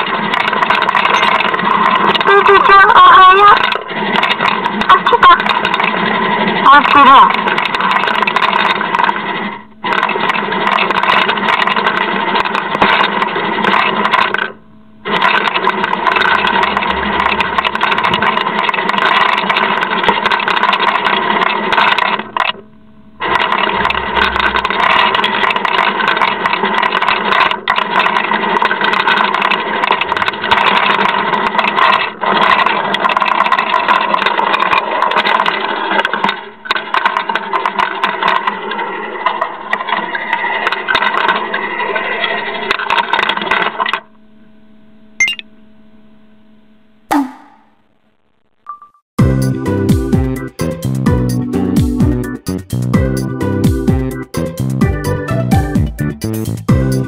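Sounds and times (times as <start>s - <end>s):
pet feeder motor whirring: 0.0s - 44.2s.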